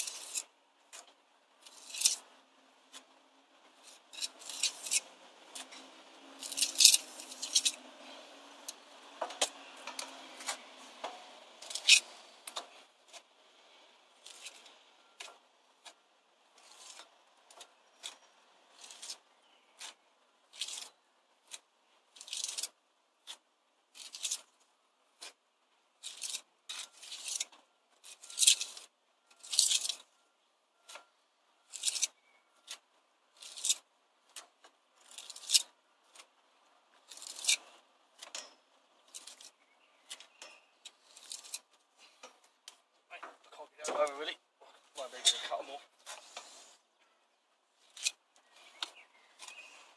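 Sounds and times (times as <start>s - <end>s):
trowel scraping mortar: 0.0s - 0.5s, 1.6s - 2.3s, 3.8s - 8.8s, 11.6s - 13.3s, 14.2s - 16.0s, 16.6s - 21.6s, 24.0s - 24.5s, 26.0s - 30.1s, 33.4s - 33.9s, 35.0s - 36.3s, 37.0s - 42.2s.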